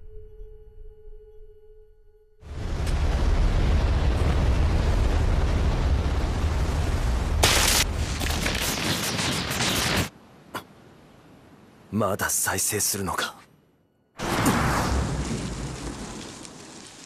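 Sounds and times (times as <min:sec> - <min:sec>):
deep explosion rumble: 0:02.5 - 0:08.4
sharp crackling bursts: 0:02.5 - 0:10.2, 0:14.2 - 0:17.0.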